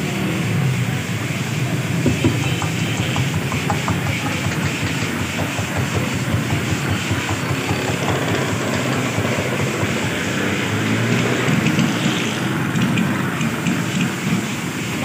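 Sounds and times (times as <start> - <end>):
rumbling and hissing of food stall: 0.0 - 15.0.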